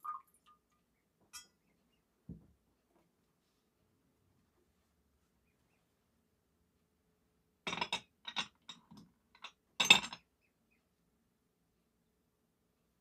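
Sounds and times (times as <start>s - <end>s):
glass and metal clinking: 1.3s - 1.6s, 9.4s - 10.2s.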